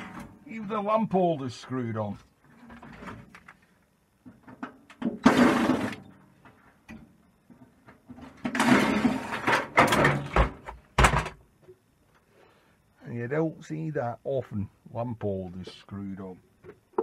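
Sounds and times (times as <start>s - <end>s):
sheet metal scraping and rattling: 8.2s - 10.4s.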